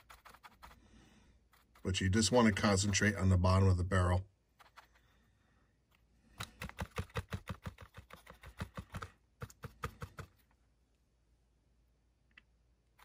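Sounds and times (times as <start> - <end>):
paintbrush tapping on plastic: 6.4 - 10.5.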